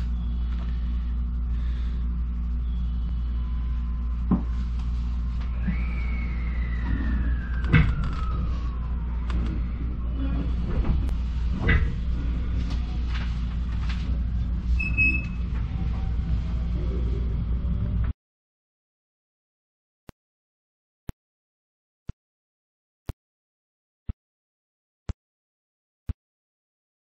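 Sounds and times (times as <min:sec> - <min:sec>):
high whine falling in pitch: 0:00.0 - 0:11.3.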